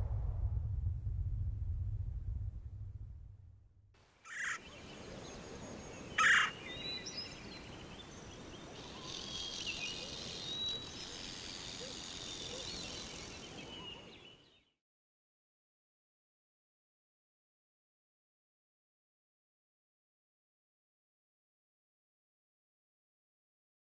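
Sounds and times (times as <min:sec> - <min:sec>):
steady outdoor hiss: 0:04.0 - 0:14.7
loud bird calls: 0:04.3 - 0:04.9, 0:05.8 - 0:14.6
thin bird chirps and whistles: 0:08.8 - 0:14.8.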